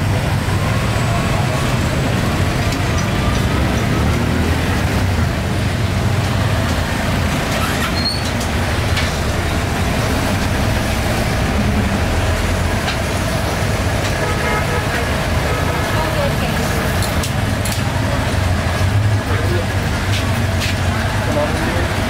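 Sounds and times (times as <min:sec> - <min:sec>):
road traffic rumble: 0:00.0 - 0:22.0.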